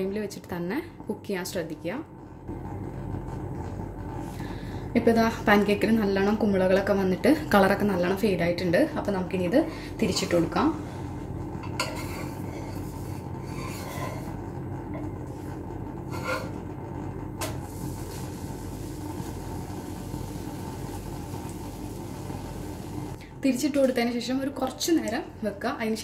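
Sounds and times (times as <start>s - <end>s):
metal spatula scraping pan: 11.6s - 14.4s, 16.1s - 16.6s.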